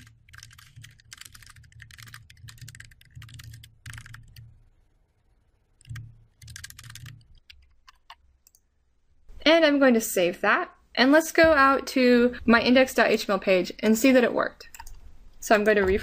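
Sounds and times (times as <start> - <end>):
computer keyboard typing: 0.0 - 4.5, 5.8 - 8.6, 14.6 - 16.0.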